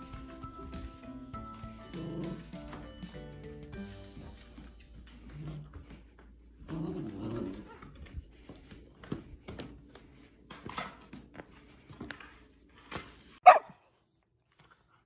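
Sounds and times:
puppy growling in play: 0:01.6 - 0:02.8, 0:05.0 - 0:08.1.

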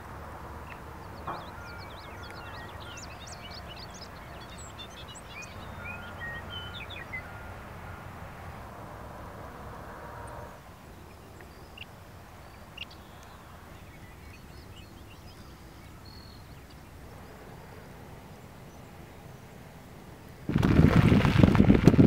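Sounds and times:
wind hitting microphone: 0:20.5 - 0:22.0.

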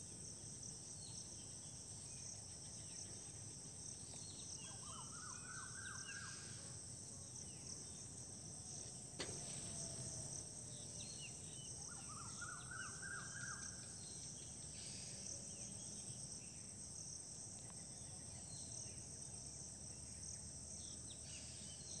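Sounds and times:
insects chirring: 0:00.0 - 0:22.0
faint chirps: 0:00.5 - 0:16.2.

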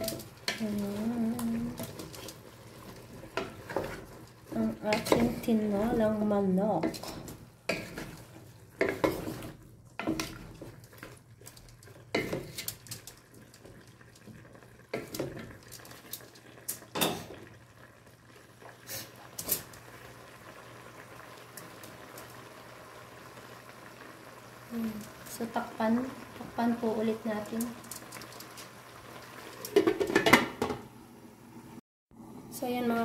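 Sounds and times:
wooden spatula scraping pot: 0:00.0 - 0:16.3
food sizzling in pot: 0:00.0 - 0:33.0.

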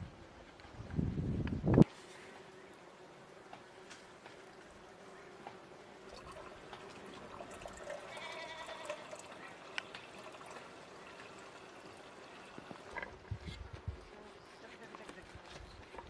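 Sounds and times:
water pouring into kettle: 0:06.1 - 0:12.9.

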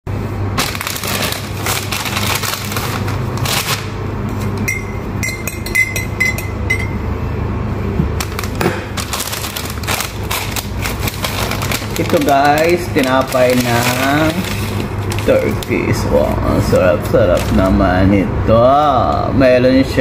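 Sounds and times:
steady low hum: 0:00.1 - 0:20.0
teaspoon clinking against glass: 0:04.6 - 0:07.0.

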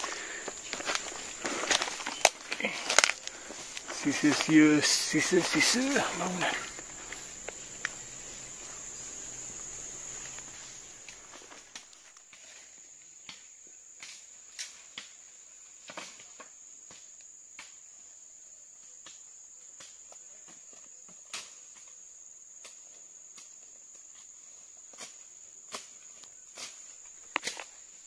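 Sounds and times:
twigs snapping: 0:00.0 - 0:08.0
footsteps in dry leaves: 0:00.0 - 0:09.0
insect drone: 0:00.0 - 0:28.0.

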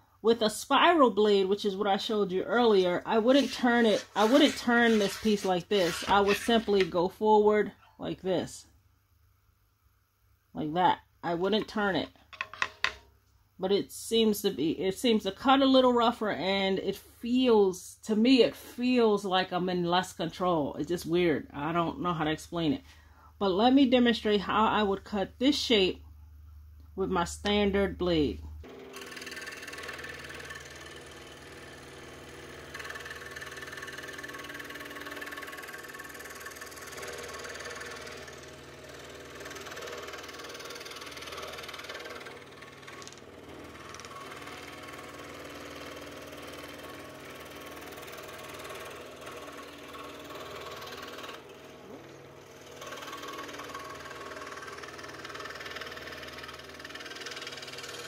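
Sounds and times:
scroll saw cutting wood: 0:00.7 - 0:07.1, 0:28.6 - 0:58.0.

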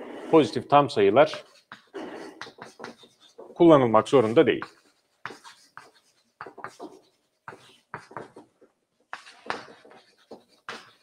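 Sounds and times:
chalk scratching on chalkboard: 0:00.0 - 0:11.0.

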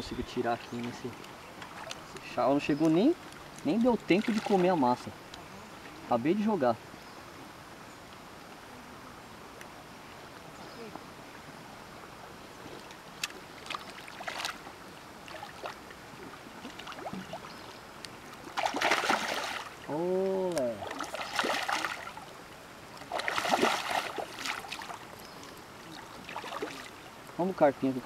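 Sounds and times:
fish splashing in water: 0:13.2 - 0:15.8, 0:18.4 - 0:22.3, 0:23.0 - 0:25.2, 0:25.8 - 0:27.0
person humming: 0:19.9 - 0:21.0.

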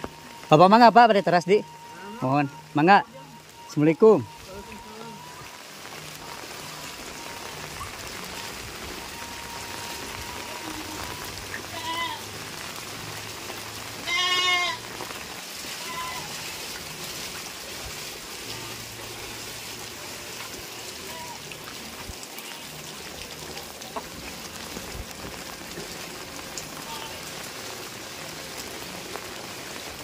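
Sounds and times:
steady rain: 0:00.0 - 0:30.0
livestock bleating: 0:10.2 - 0:12.3, 0:14.0 - 0:14.8, 0:15.8 - 0:16.5, 0:22.3 - 0:22.8, 0:26.8 - 0:27.3.

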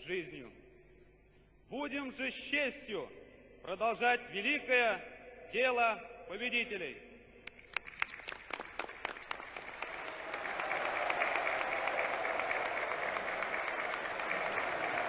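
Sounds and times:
crowd applauding: 0:07.7 - 0:15.0.

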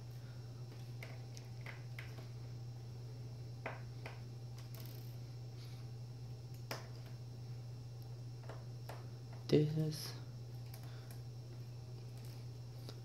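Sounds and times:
steady low hum: 0:00.0 - 0:13.0
small clicks and taps: 0:00.7 - 0:02.3.

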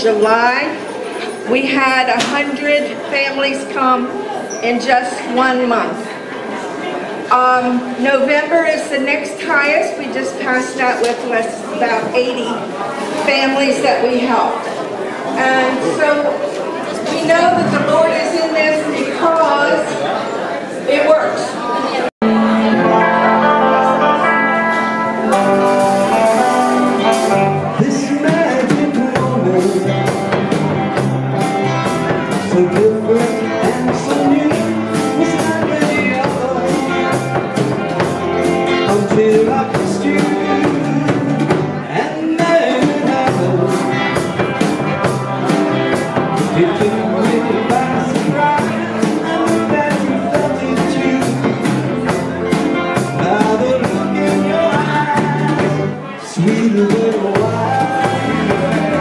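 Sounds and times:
guitar: 0:00.0 - 0:59.0
drums steady beat: 0:25.2 - 0:59.0.

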